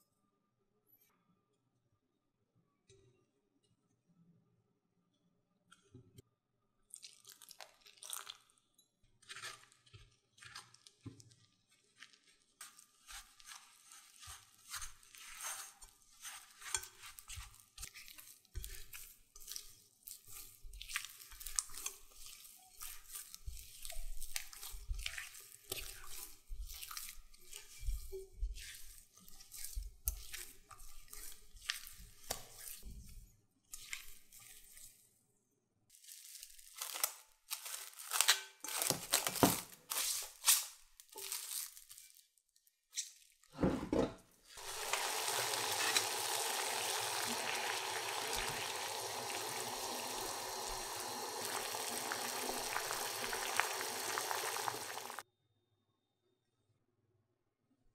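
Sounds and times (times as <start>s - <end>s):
hands kneading sticky dough: 9.3s - 32.9s, 36.0s - 42.0s
cling film crinkling: 36.0s - 43.5s, 44.6s - 55.2s.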